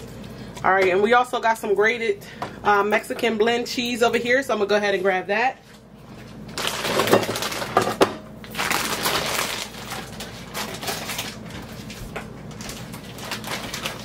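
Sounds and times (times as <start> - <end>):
plastic bag crinkling: 6.4 - 14.0.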